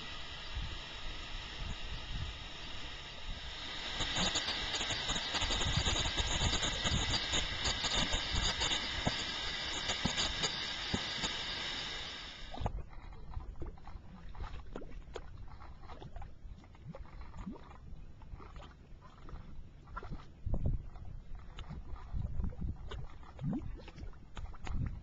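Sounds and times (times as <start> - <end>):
gas hissing from vent: 0.0 - 12.6.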